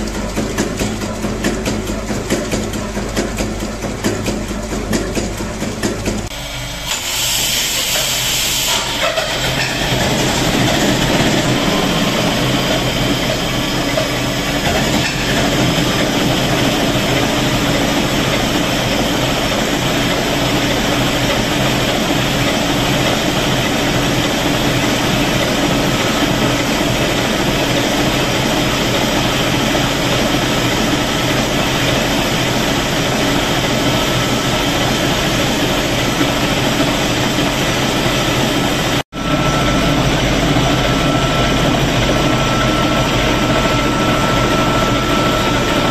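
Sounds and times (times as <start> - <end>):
diesel engine clattering: 8.8 - 38.1.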